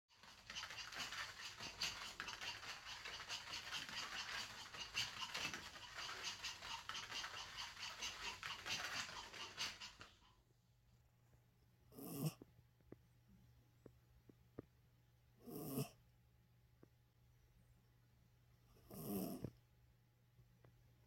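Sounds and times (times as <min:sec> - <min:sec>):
dog claws pattering on a mat: 0:00.1 - 0:10.2.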